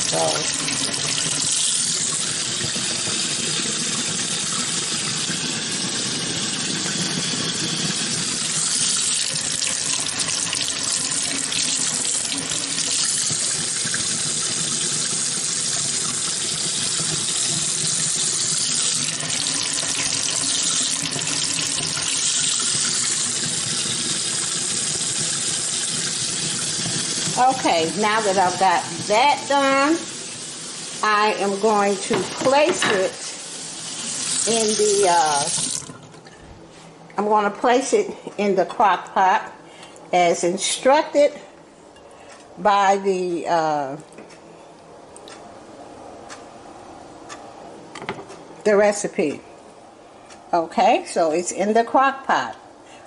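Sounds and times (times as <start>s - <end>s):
faucet water splashing into sink: 0.0s - 36.3s.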